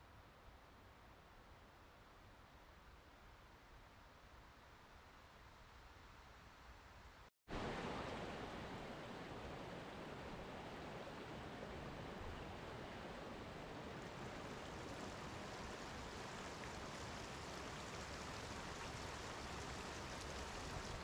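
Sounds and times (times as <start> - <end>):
creek rushing over rocks: 7.5 - 21.0.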